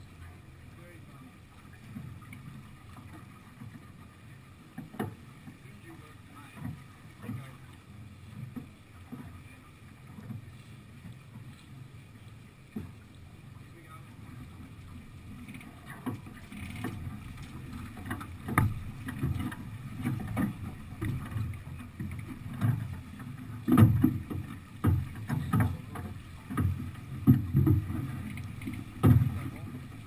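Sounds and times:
heavy water surges: 0.0s - 30.0s
water noise: 0.0s - 30.0s
wind: 0.0s - 30.0s.

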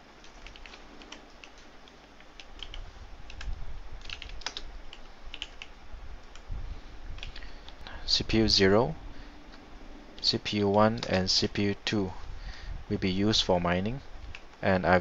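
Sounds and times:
typing on computer keyboard: 0.2s - 5.7s
low rumble: 5.9s - 14.4s.

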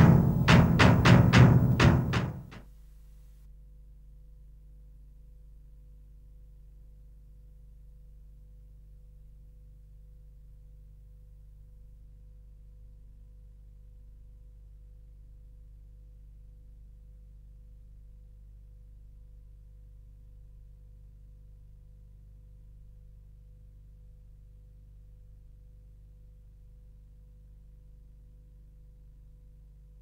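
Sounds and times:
faint low hum: 0.0s - 2.6s.

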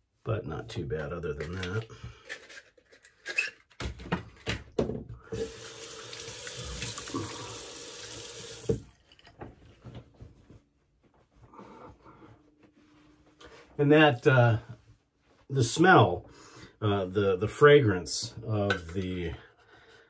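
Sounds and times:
sink tap running: 5.3s - 8.9s.

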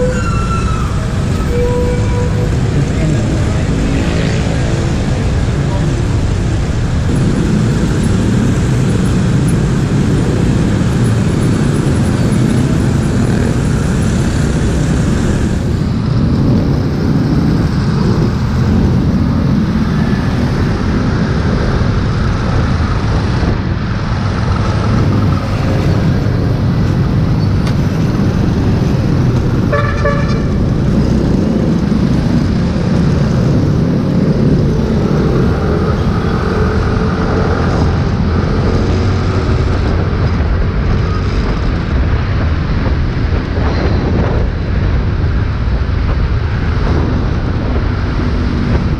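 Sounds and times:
motorcycle engine: 0.0s - 42.7s
passing vehicles: 0.0s - 48.9s
wind on microphone: 0.0s - 48.9s
vehicle horn beeping: 1.4s - 2.6s, 29.7s - 30.5s.

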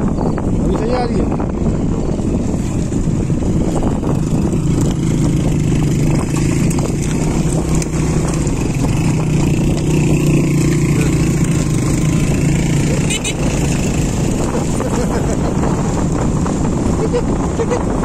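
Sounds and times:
road noise on dirt track: 0.0s - 18.0s.

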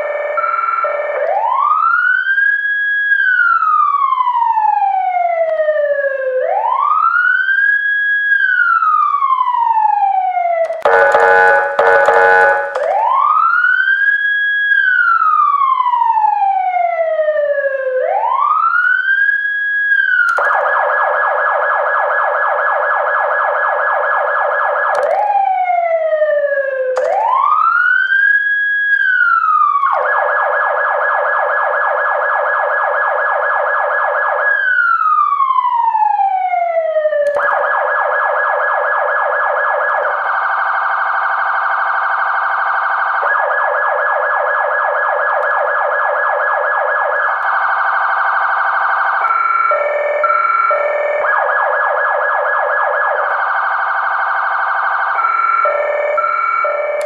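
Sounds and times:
emergency siren wailing and yelping: 0.0s - 57.0s.

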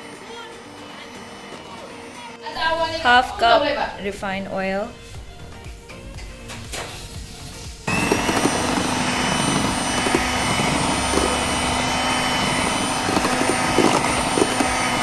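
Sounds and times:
electric hand mixer whipping batter: 0.0s - 4.0s, 7.1s - 15.0s.

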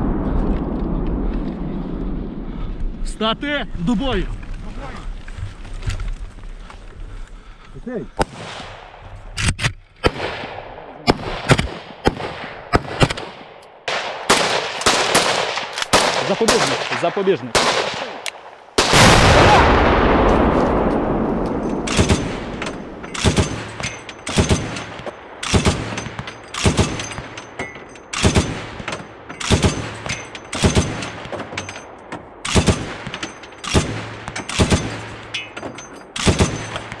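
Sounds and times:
rolling echo of blast: 0.0s - 5.3s, 8.2s - 9.4s, 10.0s - 27.4s
gunfire echoing: 8.2s - 9.4s, 10.0s - 37.0s.

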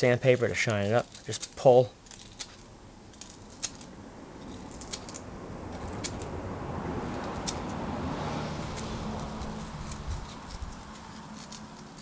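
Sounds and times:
sandpaper rasping on copper wire: 8.6s - 12.0s.

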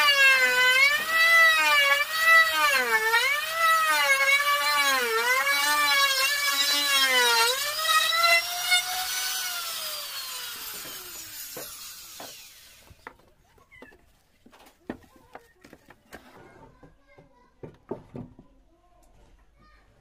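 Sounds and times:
wood router motor whine: 0.0s - 13.1s.

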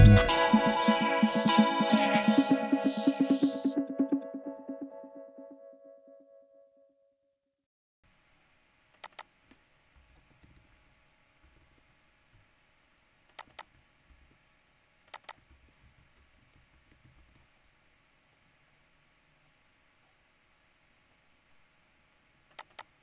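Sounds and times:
faint typing on keyboard: 8.9s - 10.8s, 13.3s - 14.4s, 15.0s - 18.4s, 22.5s - 23.0s.

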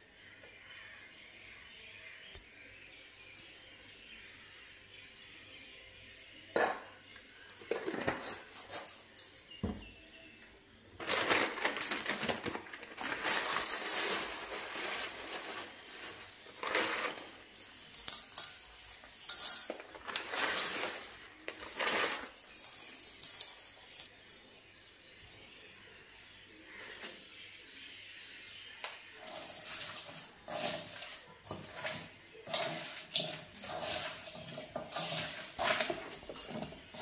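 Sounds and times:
plastic packet crinkling: 11.0s - 17.2s
spoon scraping metal bowl: 29.1s - 37.0s
salt being poured: 29.2s - 37.0s.

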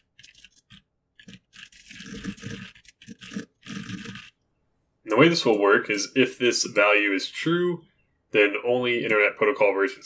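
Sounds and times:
computer keyboard typing: 0.0s - 4.3s.

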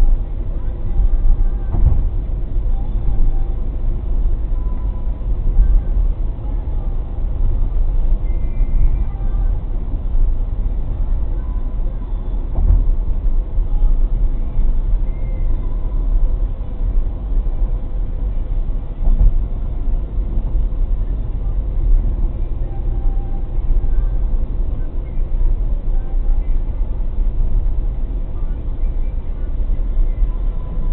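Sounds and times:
car road noise rumble: 0.0s - 30.9s
brief thump: 1.7s - 2.1s.

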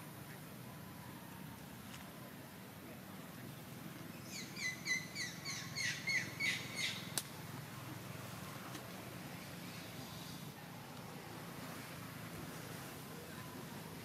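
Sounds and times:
bird chirping: 3.4s - 7.1s.

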